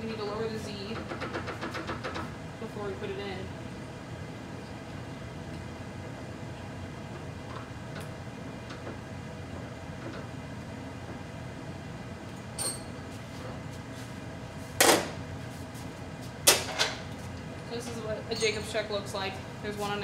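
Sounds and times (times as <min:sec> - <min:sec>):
steady background hum: 0:00.0 - 0:20.0.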